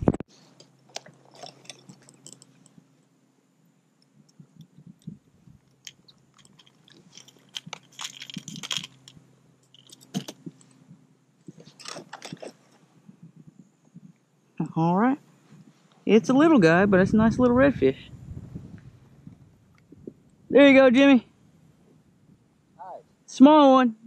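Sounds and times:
handling clicks and rustles: 0:00.0 - 0:03.2, 0:03.9 - 0:14.3
faint steady hum: 0:00.0 - 0:24.0.

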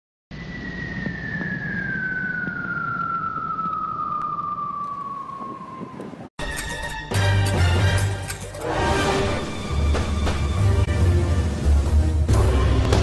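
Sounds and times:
low rumbling noise: 0:00.3 - 0:06.3.

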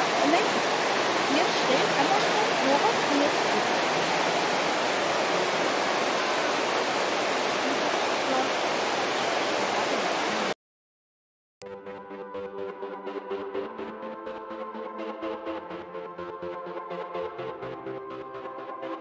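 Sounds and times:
river rushing: 0:00.0 - 0:10.6.

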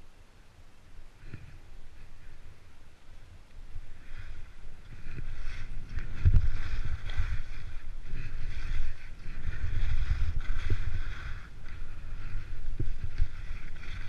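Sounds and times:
skis sliding on packed snow: 0:01.2 - 0:14.0
wind buffeting microphone: 0:03.3 - 0:14.0.

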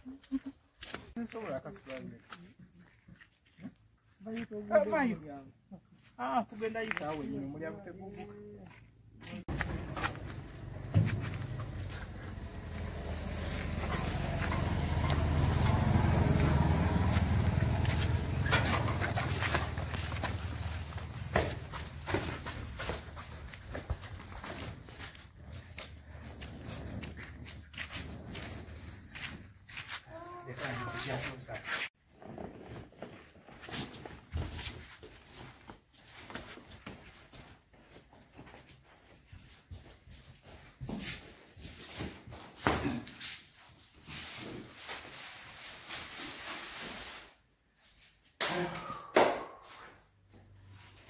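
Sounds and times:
footsteps: 0:05.9 - 0:31.9
heavy thump: 0:09.5 - 0:11.9
vehicle engine droning: 0:09.5 - 0:22.8.

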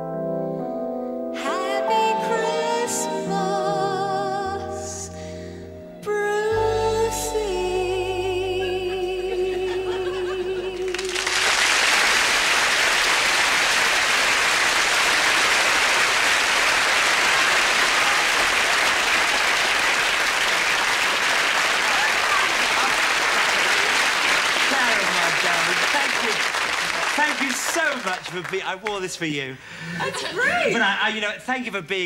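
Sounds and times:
woman singing with vibrato: 0:01.4 - 0:05.2, 0:06.0 - 0:11.5
audience applauding: 0:10.8 - 0:29.4.

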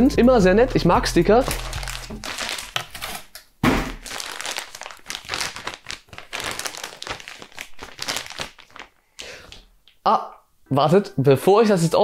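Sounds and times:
plastic bag crinkling: 0:01.4 - 0:09.7.

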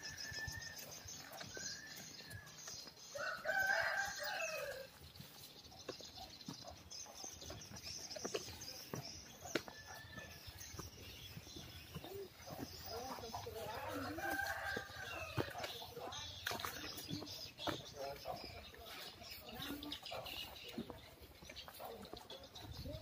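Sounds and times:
rooster crowing: 0:03.1 - 0:04.9, 0:13.7 - 0:15.5.

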